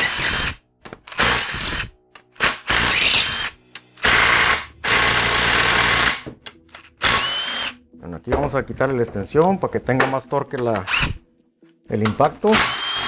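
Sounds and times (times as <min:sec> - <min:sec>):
impact wrench motor spinning: 0:00.0 - 0:06.2, 0:07.0 - 0:07.7, 0:10.9 - 0:11.2, 0:12.6 - 0:13.0
impact wrench hammering: 0:02.4 - 0:07.7.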